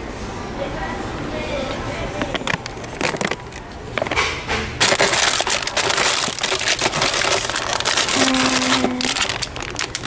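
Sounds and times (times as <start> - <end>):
foil bags crinkling: 2.2 - 10.0.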